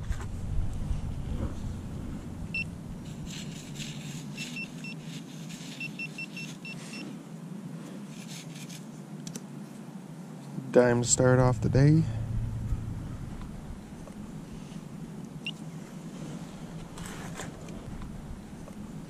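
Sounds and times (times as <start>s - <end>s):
fingers digging through sand: 3.0s - 7.0s.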